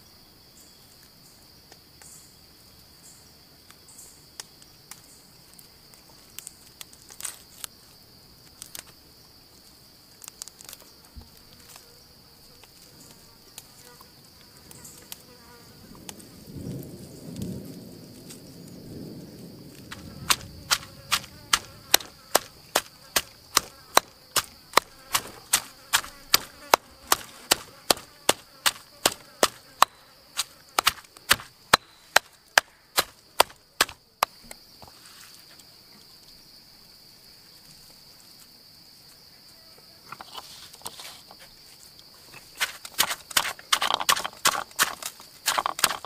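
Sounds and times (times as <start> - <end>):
insects buzzing: 0.0 - 46.0
pestle pounding in stone mortar: 19.9 - 34.0, 42.6 - 46.0.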